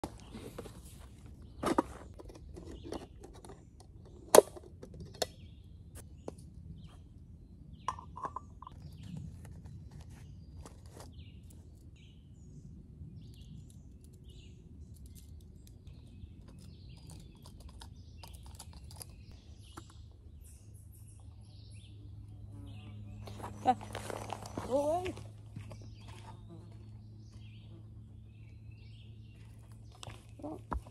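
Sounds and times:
small birds chirping: 0:00.0 - 0:04.4, 0:05.0 - 0:30.9
camping gear clicks and rustles: 0:00.0 - 0:05.6, 0:08.0 - 0:12.0, 0:13.3 - 0:20.1, 0:23.3 - 0:26.4.

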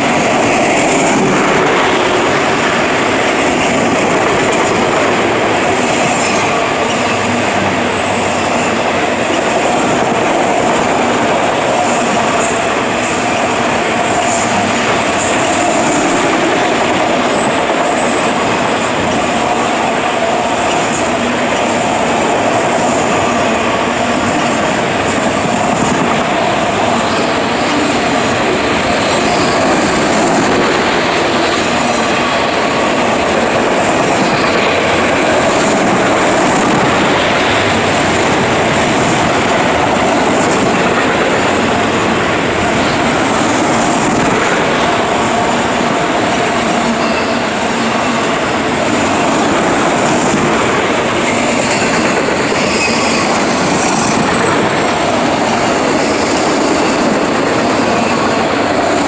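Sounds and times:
steel wheels rumbling on rail: 0:00.0 - 0:59.0
high wheel squeal: 0:26.5 - 0:41.9, 0:46.6 - 0:58.6.

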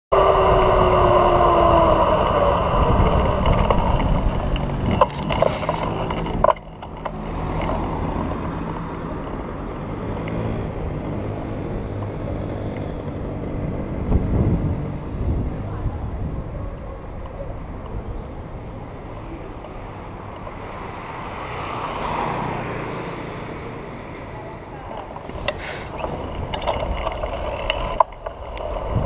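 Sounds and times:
falling whine: 0:00.1 - 0:06.3
wind rush on microphone: 0:00.1 - 0:06.5, 0:10.4 - 0:19.0, 0:25.1 - 0:29.0
city street traffic: 0:00.1 - 0:29.0.

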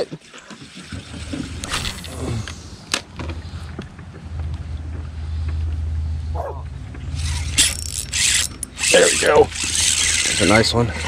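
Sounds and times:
fishing reel whirring: 0:07.2 - 0:11.0.

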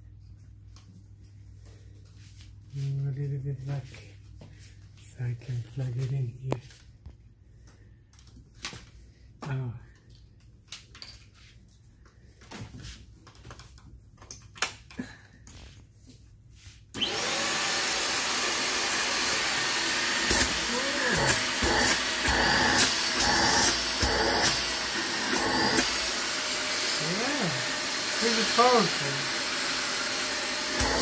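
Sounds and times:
stick vacuum cleaner running: 0:17.0 - 0:31.0.

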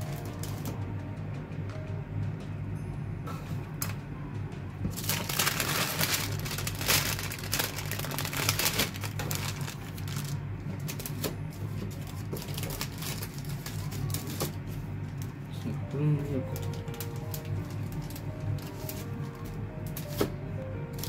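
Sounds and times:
treat bags crinkling: 0:00.0 - 0:00.8, 0:04.9 - 0:20.3
quiet background music: 0:00.0 - 0:21.0.

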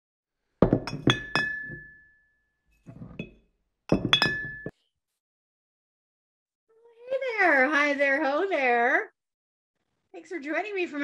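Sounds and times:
glass clinking: 0:00.6 - 0:02.3, 0:02.9 - 0:04.8.

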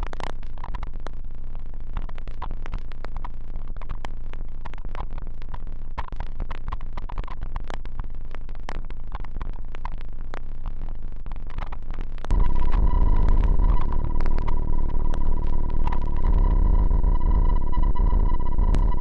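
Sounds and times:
electronic clicks and crackles: 0:00.0 - 0:19.0
steady low hum: 0:12.2 - 0:19.0.

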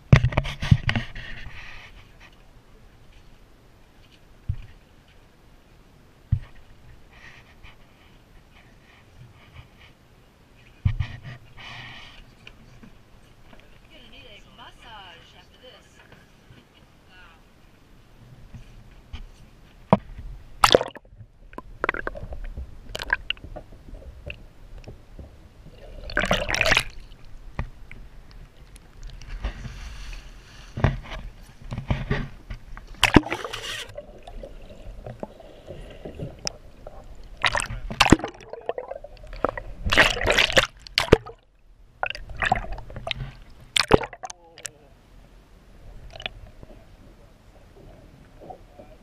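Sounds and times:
water sloshing and gurgling underwater: 0:00.0 - 0:14.6, 0:16.2 - 0:49.0
splashes: 0:20.6 - 0:23.4, 0:25.7 - 0:27.3, 0:32.9 - 0:41.4, 0:42.0 - 0:44.7
water rushing bursts: 0:25.6 - 0:27.4, 0:32.9 - 0:41.4, 0:42.0 - 0:44.7.

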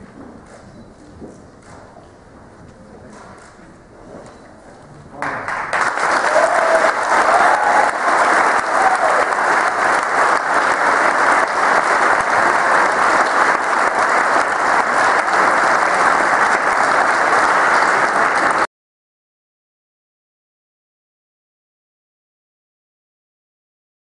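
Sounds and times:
crowd applauding: 0:05.2 - 0:18.7.

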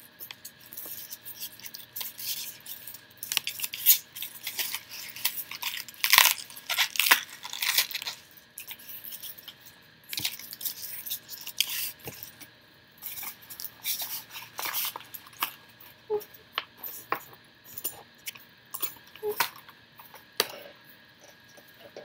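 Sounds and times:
packaging rustling: 0:00.8 - 0:09.4, 0:13.0 - 0:15.6.

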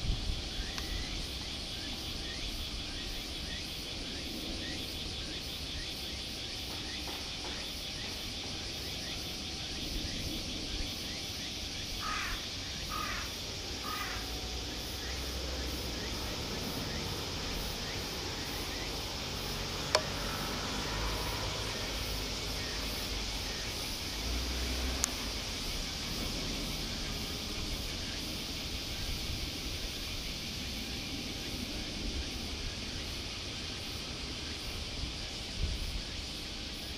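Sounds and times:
insects droning: 0:00.0 - 0:36.9
crow cawing: 0:12.0 - 0:14.2.

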